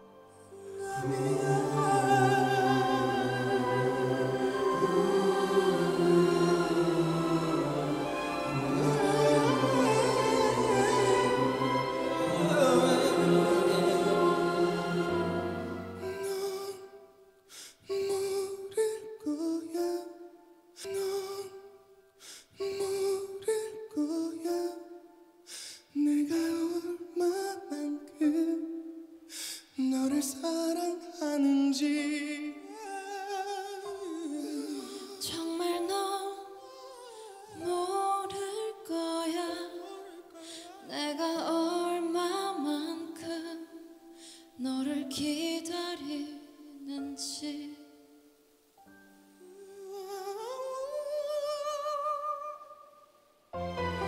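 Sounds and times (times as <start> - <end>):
soft sustained chord: 0.0 - 16.8
man singing high note with vibrato: 0.0 - 17.0, 36.6 - 37.8
large choir singing: 0.4 - 16.8
woman singing into microphone: 35.2 - 36.8, 37.5 - 43.8, 44.6 - 47.9.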